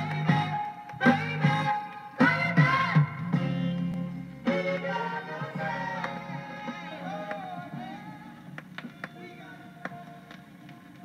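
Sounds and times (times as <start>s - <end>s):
song from vinyl record: 0.0s - 11.0s.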